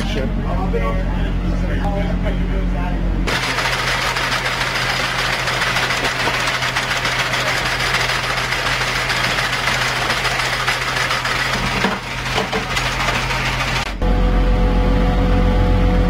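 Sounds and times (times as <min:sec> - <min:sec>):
machinery drone: 0:00.0 - 0:16.0
low hum: 0:09.1 - 0:16.0.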